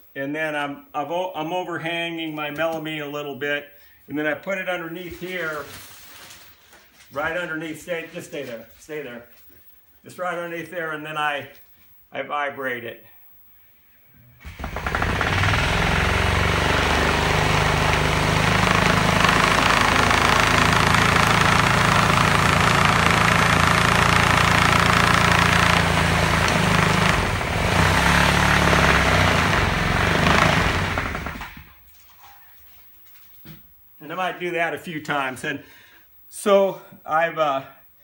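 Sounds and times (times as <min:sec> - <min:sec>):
reciprocating saw shaking table: 0:14.4 - 0:31.7.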